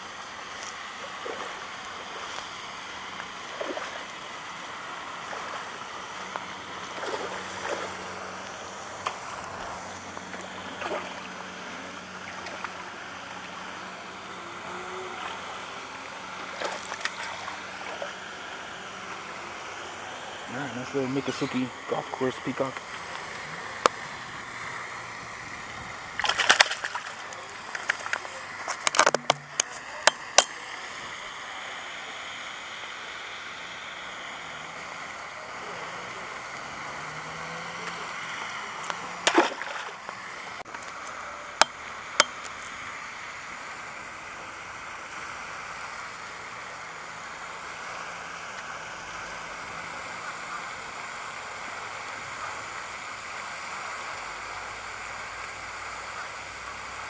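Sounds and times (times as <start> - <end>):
water splashing: 0.0 - 31.1, 32.6 - 42.7
steady outdoor hiss: 0.0 - 57.0.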